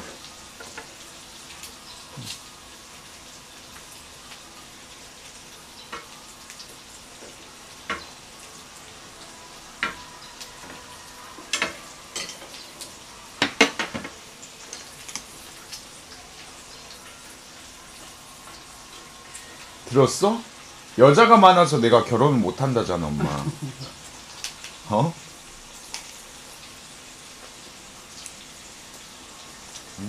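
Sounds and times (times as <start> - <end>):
meat sizzling on a grill: 0.0 - 30.0
utensils clattering on dishes: 11.4 - 12.7.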